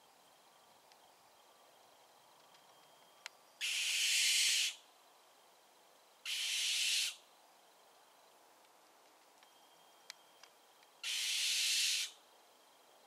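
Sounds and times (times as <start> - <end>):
barn owl screeching: 3.6 - 4.8, 6.2 - 7.2, 11.0 - 12.2.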